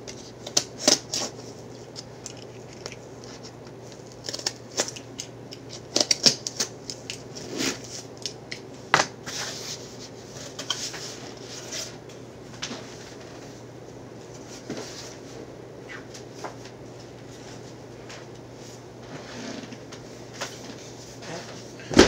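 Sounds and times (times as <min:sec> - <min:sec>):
packaging crinkling and rustling: 0:00.1 - 0:08.5.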